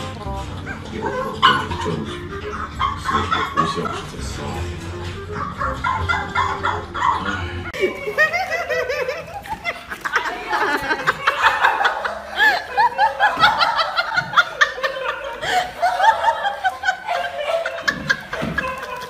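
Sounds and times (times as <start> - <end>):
person laughing in snickers: 7.8 - 19.0.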